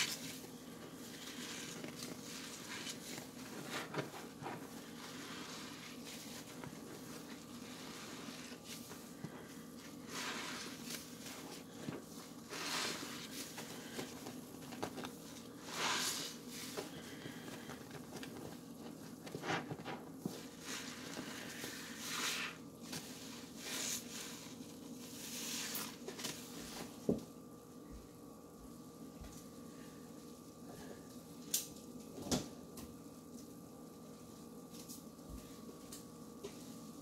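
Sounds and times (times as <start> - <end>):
soapy sponges squishing: 0.0 - 19.6, 20.2 - 27.0
steady low hum: 0.0 - 37.0.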